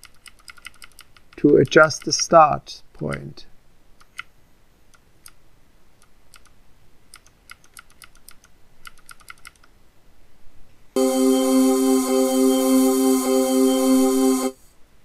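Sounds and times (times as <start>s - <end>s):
keyboard keys clicking: 0.0s - 2.1s, 7.2s - 9.7s.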